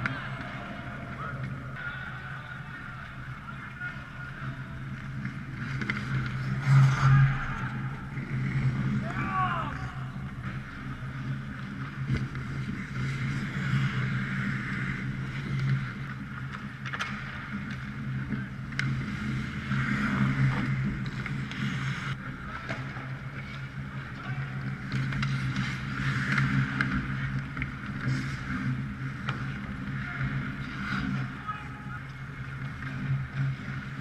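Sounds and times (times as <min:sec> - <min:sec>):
skates scraping ice: 0:00.0 - 0:34.0
stick hitting puck: 0:16.5 - 0:17.8.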